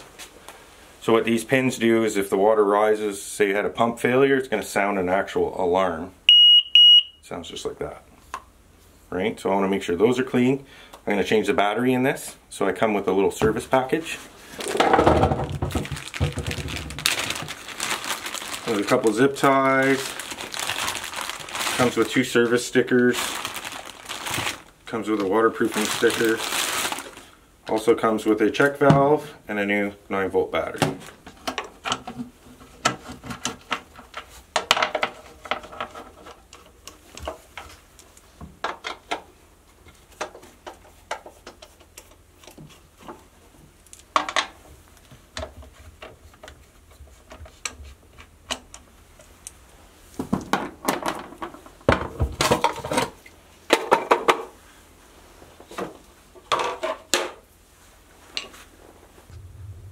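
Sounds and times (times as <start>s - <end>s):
handling plastic parts clatter: 14.5s - 22.3s, 23.0s - 27.2s.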